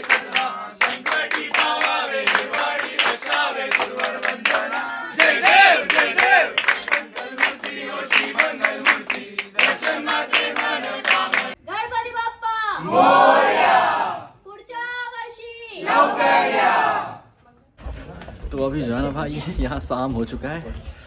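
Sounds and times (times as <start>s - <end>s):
group of people singing: 0.0s - 11.6s, 12.8s - 14.3s, 15.8s - 17.2s
rhythmic hand clapping: 0.0s - 11.6s.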